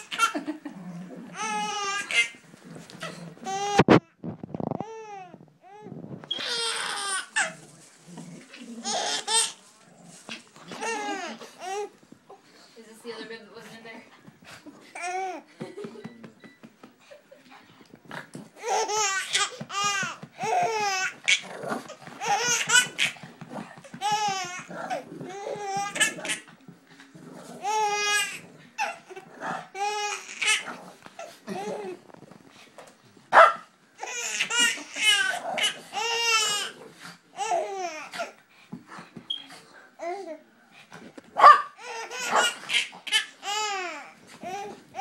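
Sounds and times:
baby laughing: 0.0 - 0.6, 18.6 - 21.4, 22.2 - 26.5, 34.0 - 36.7
dog barking: 33.3 - 33.7, 41.4 - 42.6.

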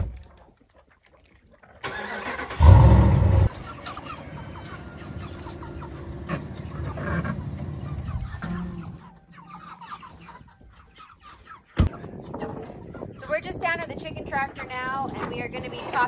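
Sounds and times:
chickens clucking: 3.4 - 16.0.

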